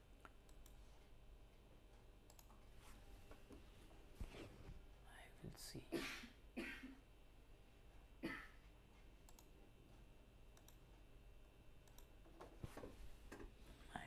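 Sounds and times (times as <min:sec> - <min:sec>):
computer mouse clicks: 0:00.2 - 0:00.8, 0:02.2 - 0:02.7, 0:09.2 - 0:09.6, 0:10.5 - 0:10.9, 0:11.8 - 0:13.5.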